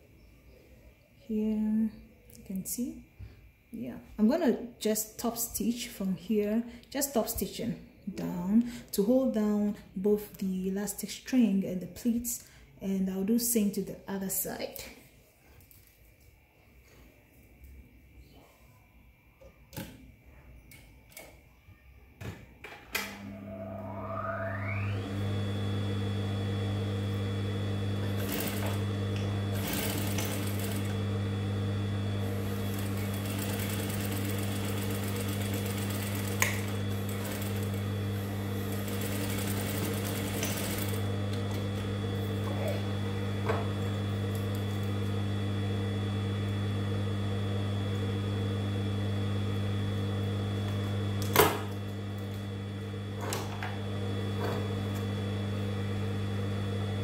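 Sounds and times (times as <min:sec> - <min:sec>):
sewing machine motor hum and whine: 0:23.2 - 0:57.0
sewing machine needle running: 0:27.7 - 0:48.3.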